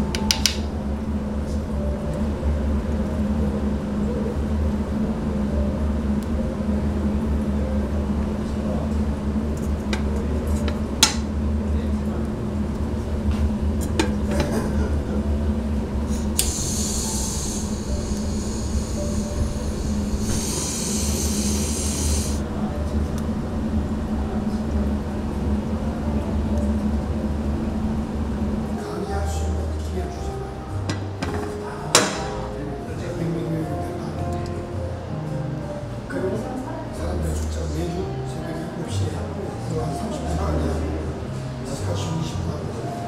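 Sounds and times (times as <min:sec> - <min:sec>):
steady low hum: 0:00.0 - 0:43.0
hissing: 0:16.2 - 0:22.4.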